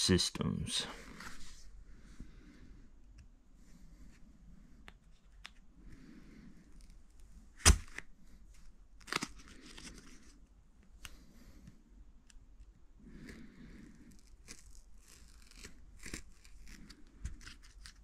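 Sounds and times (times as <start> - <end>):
packing tape cut and torn: 7.6 - 8.1, 9.0 - 10.1, 14.1 - 18.0
faint clicks and scrapes: 8.5 - 18.0.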